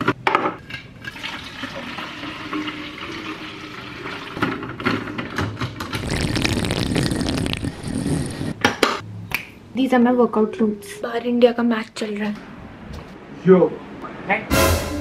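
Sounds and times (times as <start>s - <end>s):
person drinking from bottle: 5.8s - 8.6s.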